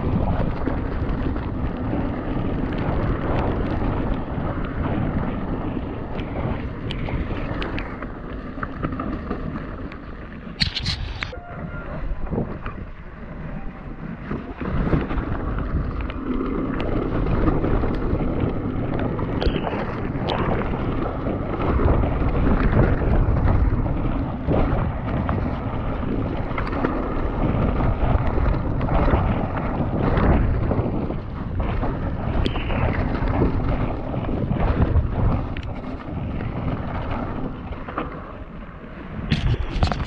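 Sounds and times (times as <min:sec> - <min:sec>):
bike rattling and knocking: 0:00.0 - 0:11.4, 0:12.0 - 0:40.0
bike tyres rumbling: 0:00.0 - 0:40.0
wind buffeting microphone: 0:00.0 - 0:40.0.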